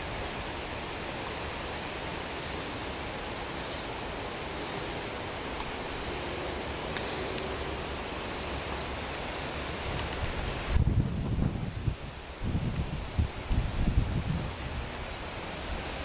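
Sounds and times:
outdoor background hiss: 0.0 - 16.0
faint ticks: 6.9 - 7.6.

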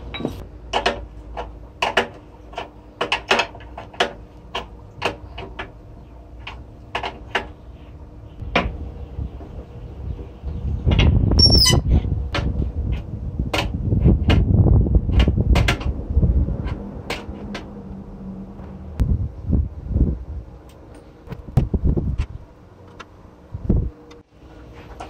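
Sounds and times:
low rumble: 8.4 - 20.6
brief high squeak: 11.4 - 11.9.

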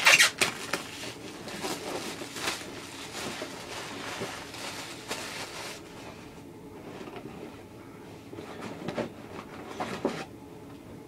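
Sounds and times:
packaging tearing: 0.0 - 0.9
wrapping and cardboard rustling: 0.0 - 6.2.

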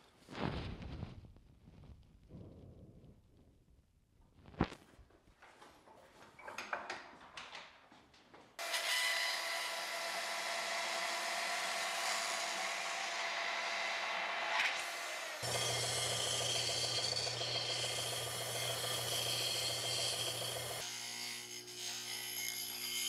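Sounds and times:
band saw cutting sheet metal: 8.6 - 23.0.

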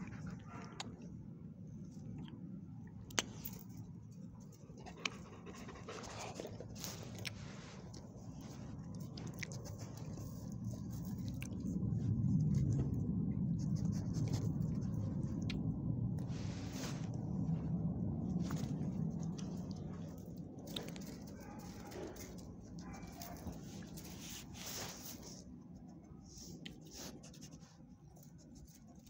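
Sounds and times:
dog panting: 4.6 - 11.9
fur rubbing against phone: 16.3 - 17.5, 23.5 - 25.5.

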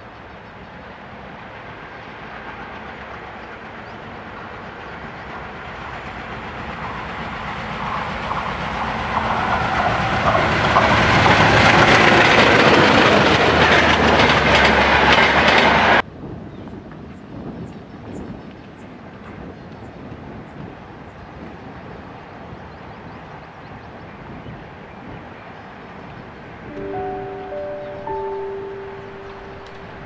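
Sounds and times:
diesel locomotive passing: 0.0 - 16.0, 26.5 - 30.0
wheels clattering over rail joints: 7.9 - 16.0.

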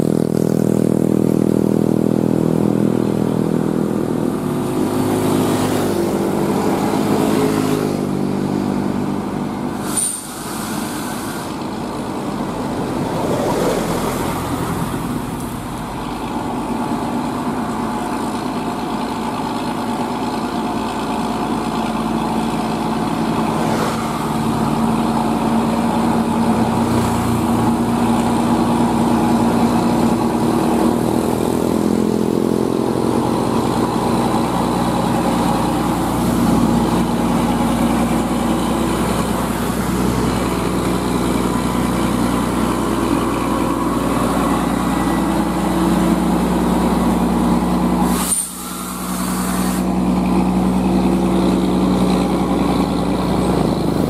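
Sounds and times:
truck diesel engine labouring: 0.0 - 54.0
truck passing: 0.0 - 54.0.

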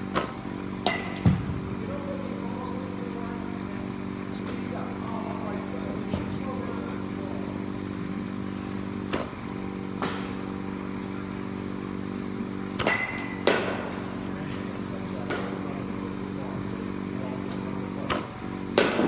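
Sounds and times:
balls striking netting: 0.0 - 1.6, 9.1 - 10.6, 12.7 - 14.3, 15.1 - 15.8, 17.5 - 19.0
steady machine hum: 0.0 - 19.0
bat hitting softball: 0.1 - 1.4, 12.8 - 14.2, 18.1 - 19.0.

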